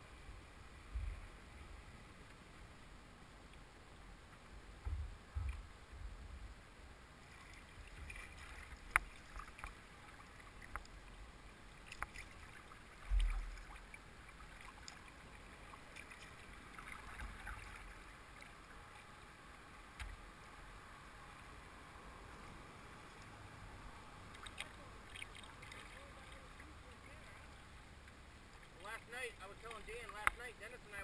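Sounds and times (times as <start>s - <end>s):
dull low thumps: 0.9s - 1.2s, 4.8s - 6.6s
water lapping at boat: 7.1s - 30.5s
light clicks and taps: 10.6s - 11.0s, 11.9s - 12.2s, 29.6s - 30.5s.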